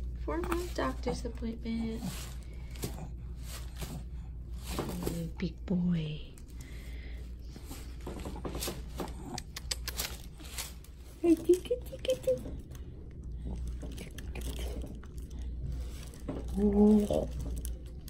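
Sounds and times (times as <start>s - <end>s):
low room hum: 0.0s - 18.0s
paper crinkling and rustling: 7.5s - 12.8s, 13.4s - 18.0s.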